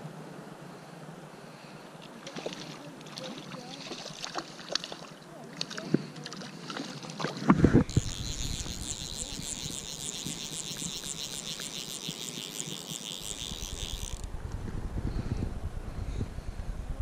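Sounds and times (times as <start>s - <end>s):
wind on microphone: 7.3s - 17.0s
fishing reel clicker rattling: 7.8s - 14.3s.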